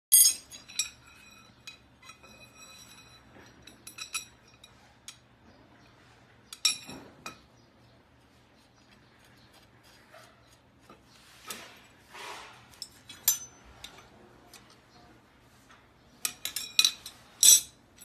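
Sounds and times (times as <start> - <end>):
metal tubes clinking: 0.1 - 7.5, 10.9 - 15.0, 16.1 - 18.0.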